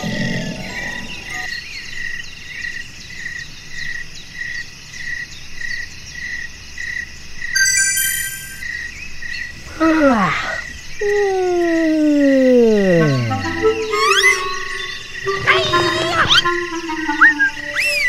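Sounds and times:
crickets chirping: 0.0 - 18.0
high chiming tones: 7.6 - 8.7, 12.8 - 18.0
faint higher chirps: 7.6 - 9.0, 9.7 - 18.0.

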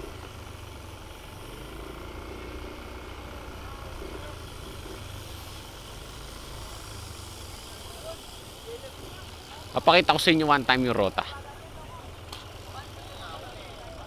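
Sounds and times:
bike tyres rolling on concrete: 0.0 - 14.0.

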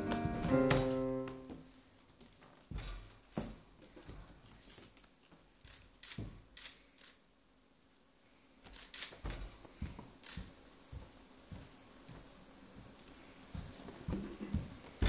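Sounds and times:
faint taps and rustles: 8.6 - 15.0.

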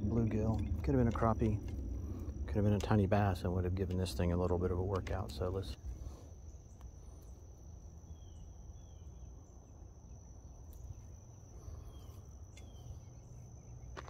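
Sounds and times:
low rumble: 0.0 - 7.1.

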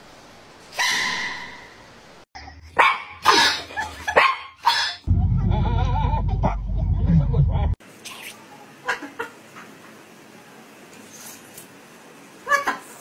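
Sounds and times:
dog barking: 0.8 - 1.7, 2.8 - 5.0.

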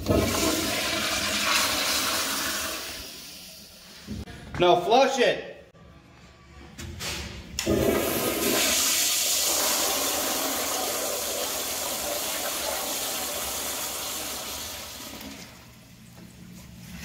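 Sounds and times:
toilet flushing: 0.0 - 3.9, 7.6 - 15.8.

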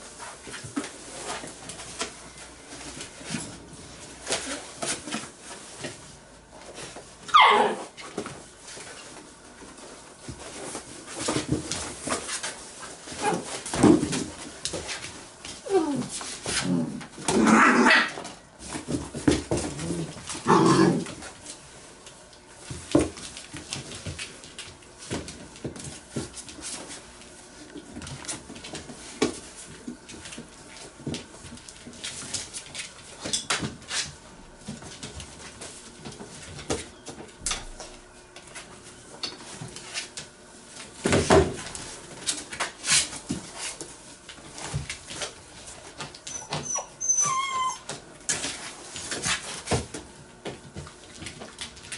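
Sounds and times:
puppies barking and whimpering: 7.3 - 7.9, 46.3 - 47.9
paws knocking on floor and box: 8.0 - 17.5, 18.2 - 21.6, 22.6 - 38.7.

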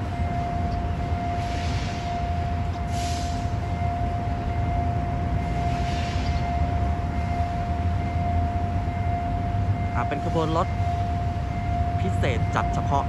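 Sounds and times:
level crossing warning tone: 0.0 - 13.0
low engine rumble: 0.0 - 13.0.

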